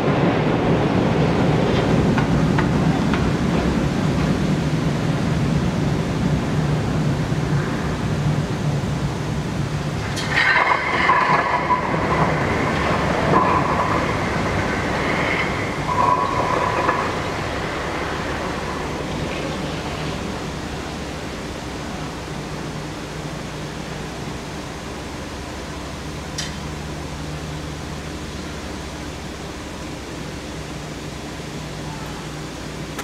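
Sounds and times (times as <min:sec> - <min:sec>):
steady rushing noise: 0:00.0 - 0:33.0
high squeals: 0:13.0 - 0:19.6.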